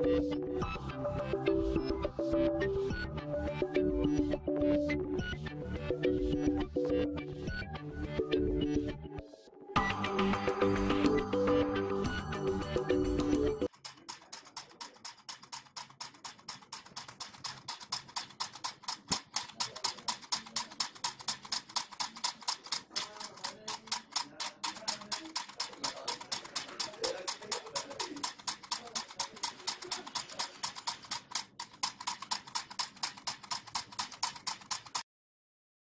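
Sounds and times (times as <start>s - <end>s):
solenoid engine clicking: 13.7s - 35.0s.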